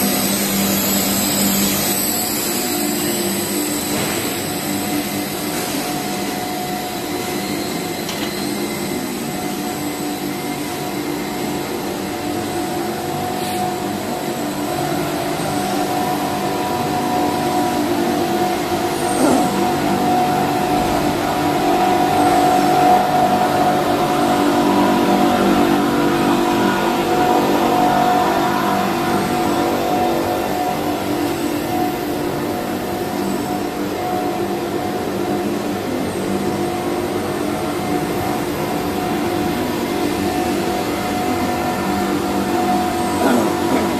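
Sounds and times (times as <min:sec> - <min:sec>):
machinery humming: 0:00.0 - 0:43.9.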